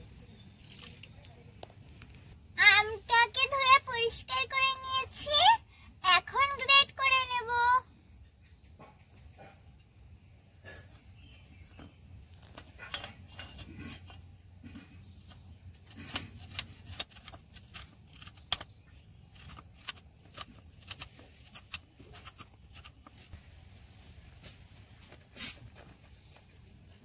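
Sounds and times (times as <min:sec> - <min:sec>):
mango rasping on metal grater: 0:11.0 - 0:23.4.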